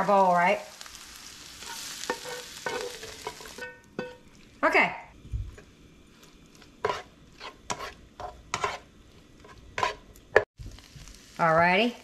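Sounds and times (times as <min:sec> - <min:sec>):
faint sizzle: 0:00.0 - 0:12.0
utensil scraping in a pan: 0:01.2 - 0:04.5, 0:05.5 - 0:10.5.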